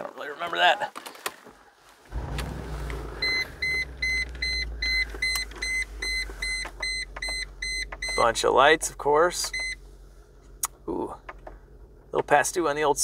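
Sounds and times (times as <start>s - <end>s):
low steady rumble: 2.1s - 13.0s
dashboard warning chime beeping: 2.6s - 8.4s, 9.4s - 9.8s.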